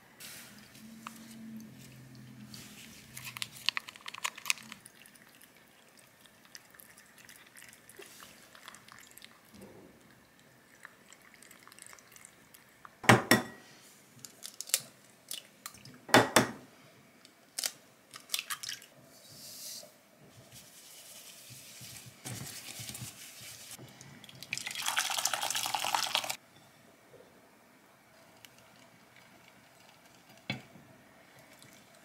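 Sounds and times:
water running: 0:04.5 - 0:12.8, 0:20.7 - 0:26.4.

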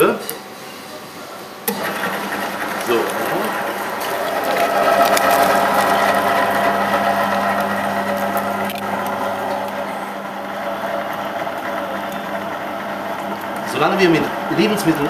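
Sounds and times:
electric meat grinder humming: 0:01.7 - 0:15.0.

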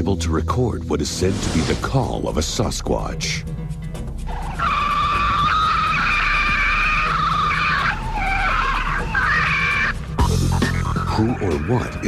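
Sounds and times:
high-pitched squealing scream: 0:04.3 - 0:10.0.

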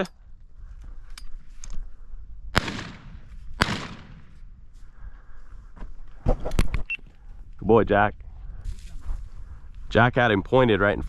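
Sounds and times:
shotgun shots with echo: 0:02.6 - 0:04.4.

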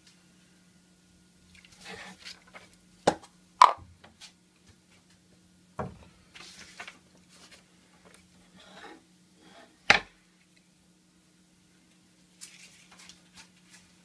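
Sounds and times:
faint steady hum: 0:00.0 - 0:14.0
rustling: 0:12.4 - 0:14.0.

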